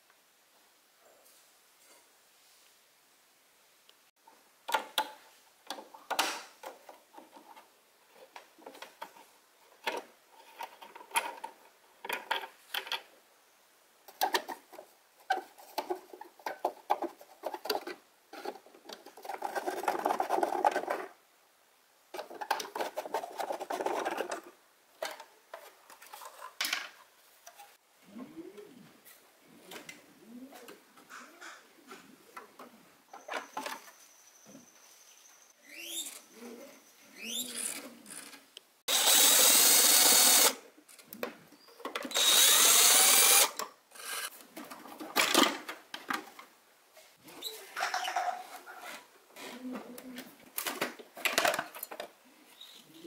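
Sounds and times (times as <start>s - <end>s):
scraping or rubbing: 14.5s - 21.2s, 22.2s - 24.6s, 47.0s - 49.8s.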